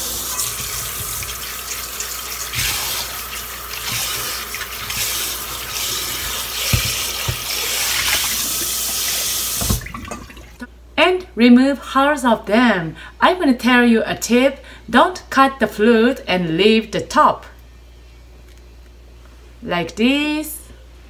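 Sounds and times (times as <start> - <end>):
water splashing: 0.4 - 10.6
tap running into steel bowl: 6.6 - 8.2.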